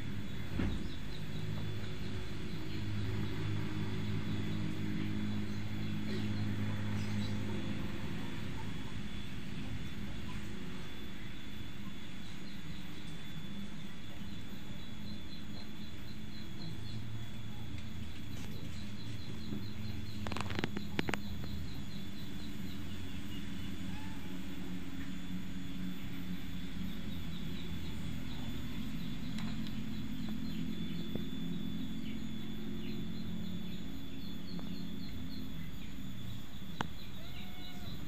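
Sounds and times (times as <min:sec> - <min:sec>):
low hum: 0:00.0 - 0:38.0
thin high whine: 0:00.0 - 0:38.0
small repeated chirps: 0:08.4 - 0:38.0.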